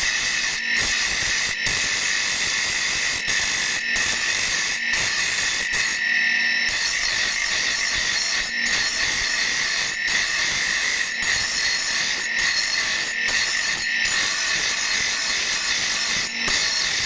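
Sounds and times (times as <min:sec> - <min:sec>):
grinding wheel grinding steel: 0:00.0 - 0:17.0.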